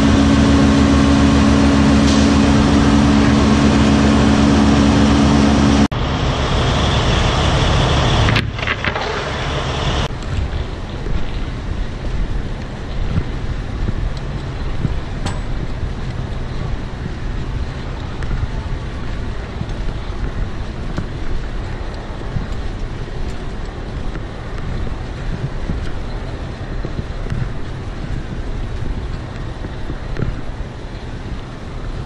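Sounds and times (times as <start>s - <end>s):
truck hydraulics rumbling: 0.0s - 10.1s
wind noise on microphone: 0.0s - 32.0s.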